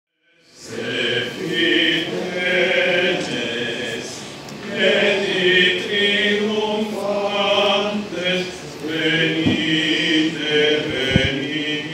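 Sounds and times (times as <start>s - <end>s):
male choir singing a carol: 0.2s - 11.9s.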